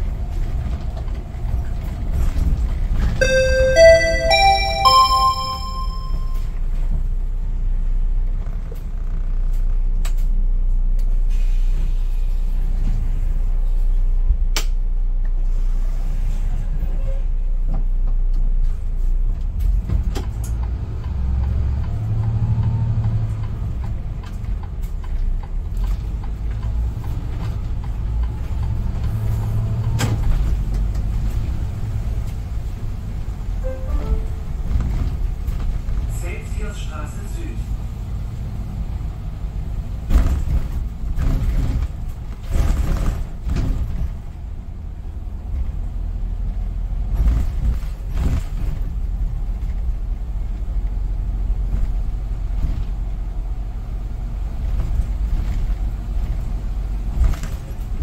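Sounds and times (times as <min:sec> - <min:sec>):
bus engine and road rumble: 0:00.0 - 0:58.0
short electronic chime: 0:03.2 - 0:06.5, 0:33.6 - 0:34.5.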